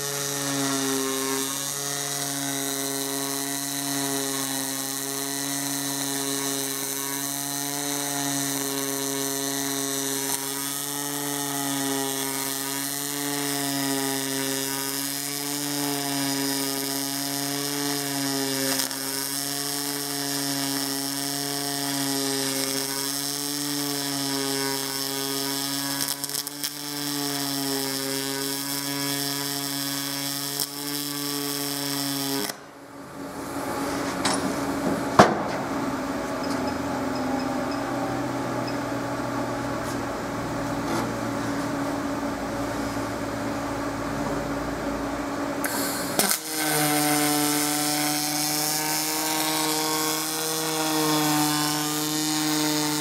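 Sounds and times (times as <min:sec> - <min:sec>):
welder arc buzzing: 0:00.0 - 0:53.0.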